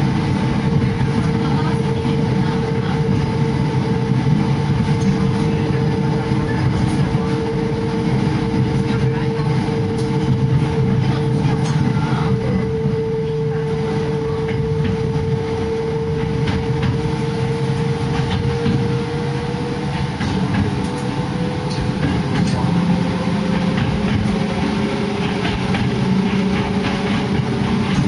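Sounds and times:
electric train whine and rumble: 0:00.0 - 0:28.0
wheels clicking on rails: 0:14.4 - 0:28.0.

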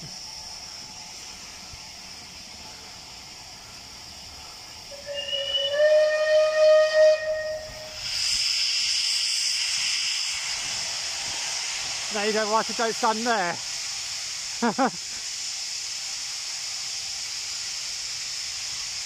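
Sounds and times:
steam hissing: 0:00.0 - 0:19.0
steam whistle: 0:04.9 - 0:08.4.

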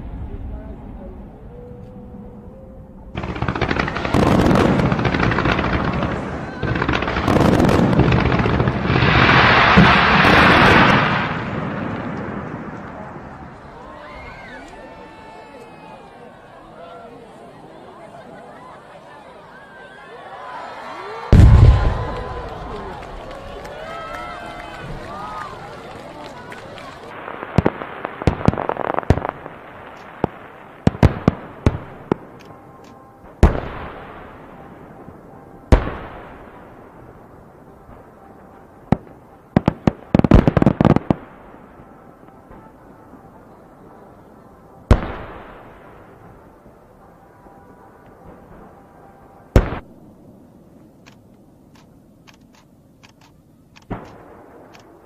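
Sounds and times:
faint firework crackle: 0:03.1 - 0:55.0
fireworks bang: 0:03.2 - 0:13.6, 0:21.3 - 0:23.4, 0:49.6 - 0:49.9
faint firework pops: 0:53.8 - 0:54.9.

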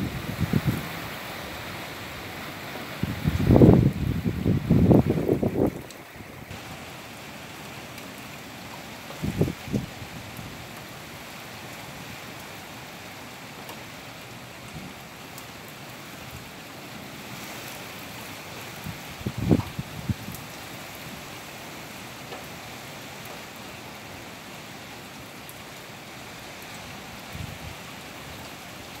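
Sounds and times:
wind buffeting microphone: 0:00.0 - 0:01.0, 0:03.0 - 0:05.9, 0:09.2 - 0:10.2, 0:19.2 - 0:20.4
heavy rain hissing: 0:00.0 - 0:29.0.

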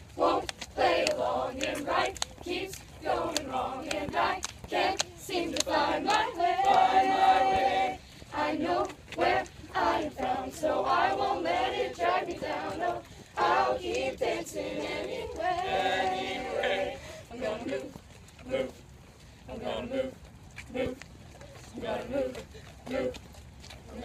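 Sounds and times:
young voices singing together: 0:00.1 - 0:18.8, 0:19.5 - 0:21.0, 0:21.7 - 0:23.2.

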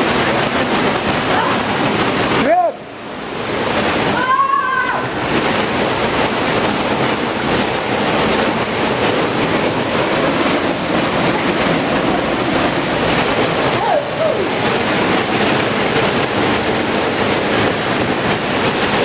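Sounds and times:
waterfall rushing: 0:00.0 - 0:19.0
person's high call: 0:04.2 - 0:05.1.

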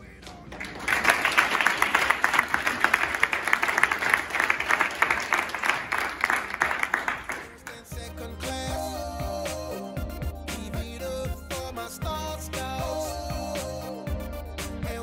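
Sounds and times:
audience applauding: 0:00.3 - 0:08.0.

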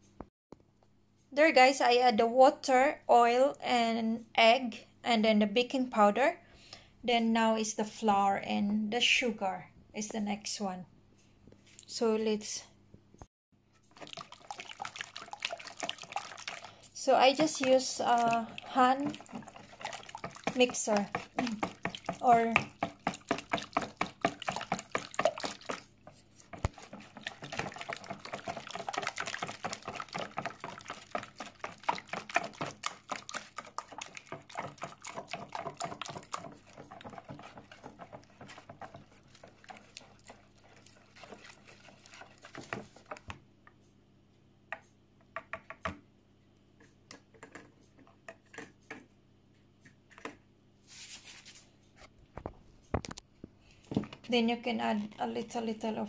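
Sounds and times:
whisk beating batter in plastic bowl: 0:13.8 - 0:43.4, 0:54.0 - 0:56.0.

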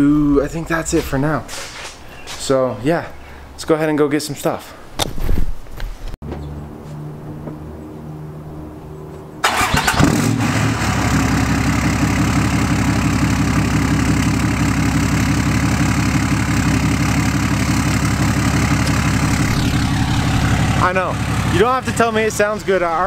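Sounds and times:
diesel engine cranking and idling: 0:09.4 - 0:23.0.

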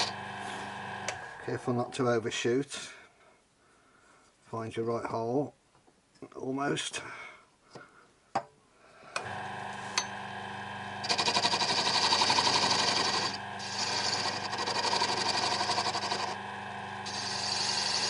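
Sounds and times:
tool scraping spinning wood: 0:00.0 - 0:01.4, 0:09.2 - 0:18.0
wood lathe motor humming: 0:00.0 - 0:01.5, 0:09.2 - 0:18.0.

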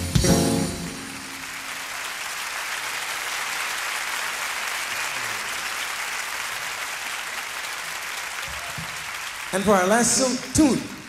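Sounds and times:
audience applauding: 0:00.9 - 0:11.0.

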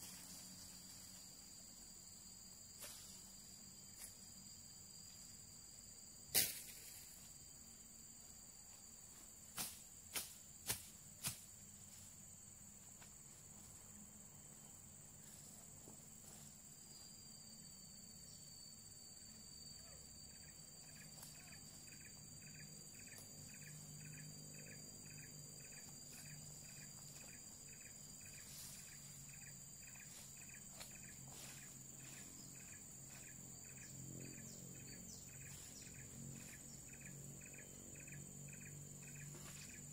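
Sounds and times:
insects droning: 0:00.0 - 0:39.9.

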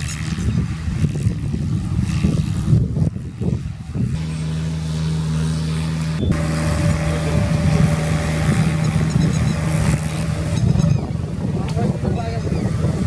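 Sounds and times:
rotary tiller churning mud: 0:04.2 - 0:13.0
tractor diesel engine running: 0:04.2 - 0:13.0.

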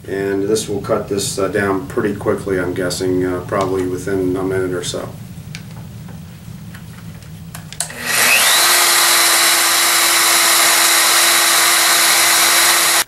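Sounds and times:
rotary polisher motor whine: 0:07.8 - 0:13.0.

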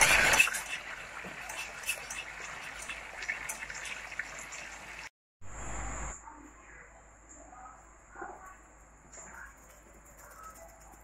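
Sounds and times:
sauce being stirred in a saucepan: 0:00.0 - 0:05.1.

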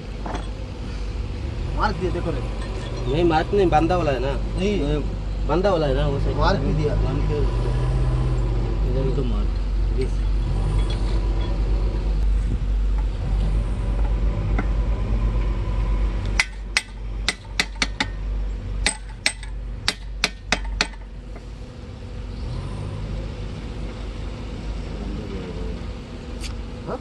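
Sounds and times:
steady low rumble: 0:00.0 - 0:27.0
hammer striking metal: 0:16.4 - 0:18.2, 0:18.8 - 0:21.1.

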